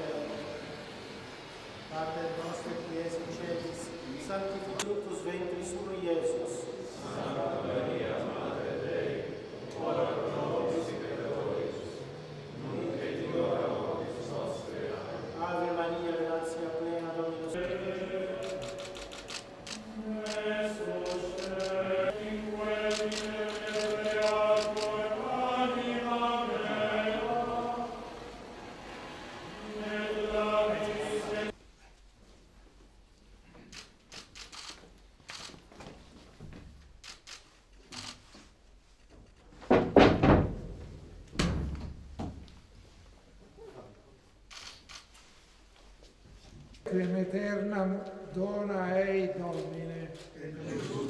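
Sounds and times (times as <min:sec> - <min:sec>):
clergy singing liturgical chant: 0:00.0 - 0:31.6, 0:46.9 - 0:51.0
rapid sharp clicks: 0:18.4 - 0:21.8, 0:22.8 - 0:25.0.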